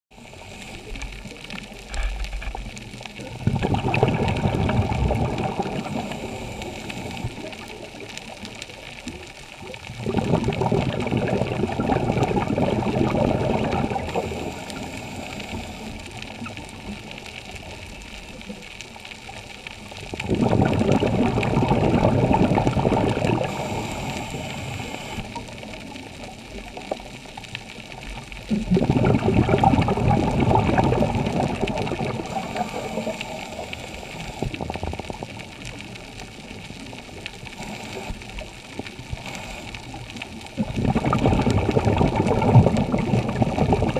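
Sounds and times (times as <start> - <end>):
underwater breathing bubbles: 0.1 - 43.9
faint hiss: 0.2 - 3.4, 4.8 - 10.0, 12.7 - 20.2, 23.0 - 28.3, 30.8 - 40.6.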